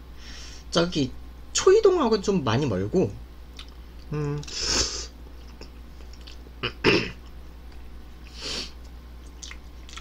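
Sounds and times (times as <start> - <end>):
man eating with breathy sounds: 0.0 - 0.7, 3.6 - 10.0
steady low hum: 0.0 - 10.0.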